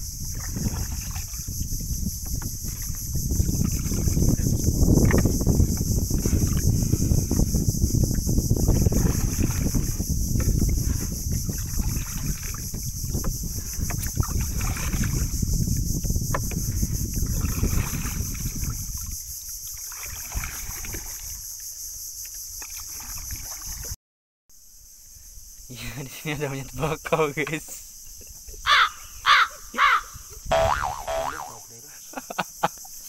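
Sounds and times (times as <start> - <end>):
wind buffeting microphone: 0.0 - 19.4
insect drone: 0.0 - 33.0.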